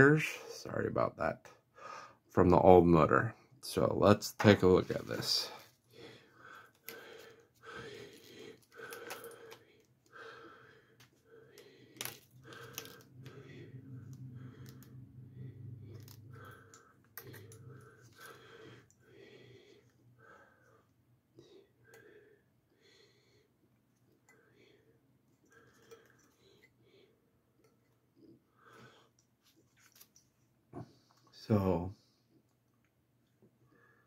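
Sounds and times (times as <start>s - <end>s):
low hum: 12.4s - 19.3s.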